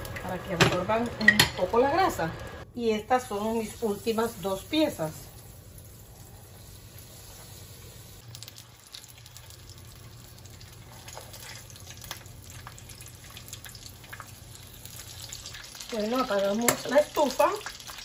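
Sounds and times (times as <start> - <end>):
fish frying in hot oil: 3.6 - 18.0.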